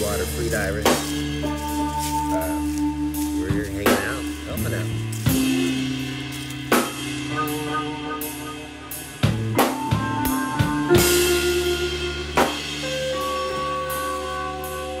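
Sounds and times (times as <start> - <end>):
background music with drums: 0.0 - 15.0.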